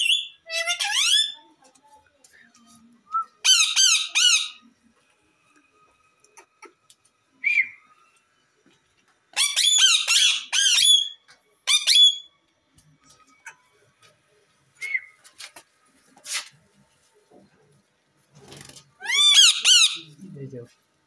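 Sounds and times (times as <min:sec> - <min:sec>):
parakeets squawking: 0:03.4 - 0:04.6, 0:09.4 - 0:12.2, 0:19.0 - 0:20.1.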